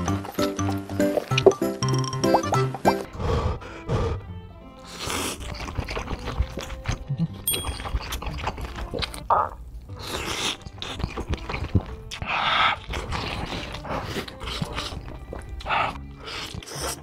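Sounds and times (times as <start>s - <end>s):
background music: 0.0s - 17.0s
wet slurping: 4.8s - 17.0s
lip smacks and chewing: 5.2s - 17.0s.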